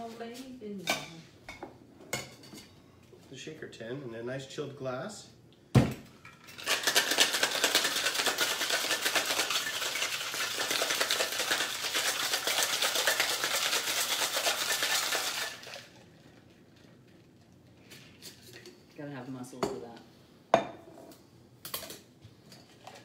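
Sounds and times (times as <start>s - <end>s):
ice rattling in cocktail shaker: 6.3s - 17.0s.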